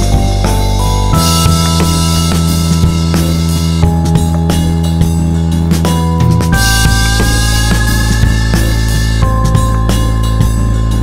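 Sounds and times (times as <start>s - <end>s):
drum kit beat: 0.0s - 11.0s
sustained pitched notes: 0.0s - 11.0s.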